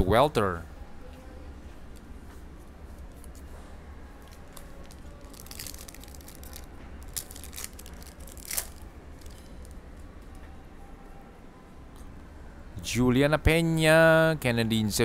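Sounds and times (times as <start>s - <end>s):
foil wrapper crinkling: 4.2s - 9.8s
sharp wrapper snap: 4.2s - 9.8s
foil pack tearing: 4.5s - 8.8s.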